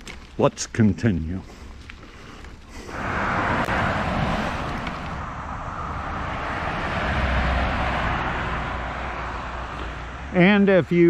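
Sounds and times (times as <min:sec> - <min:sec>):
deep vehicle rumble: 0:01.4 - 0:10.9
cars passing on road: 0:02.8 - 0:11.0.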